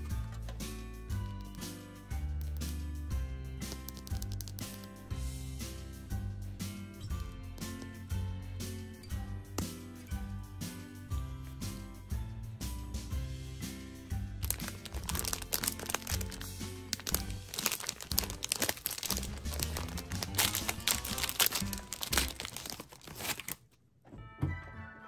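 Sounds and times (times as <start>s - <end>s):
light background music: 0.0s - 23.5s, 24.1s - 25.0s
plastic wrapper crinkling: 3.7s - 5.0s, 14.4s - 23.8s.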